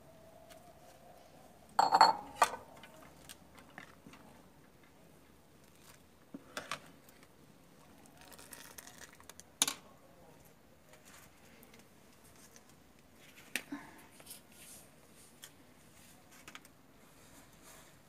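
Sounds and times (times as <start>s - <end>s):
spoon knocking against pot: 1.8s - 2.4s.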